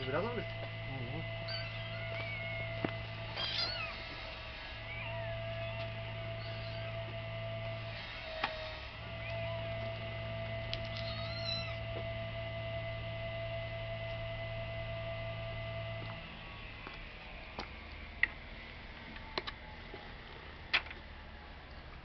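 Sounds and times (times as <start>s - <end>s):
steady hum: 0.0s - 22.0s
cat meowing: 1.4s - 4.1s, 4.9s - 5.8s, 6.4s - 7.0s, 9.2s - 9.7s, 10.8s - 11.8s.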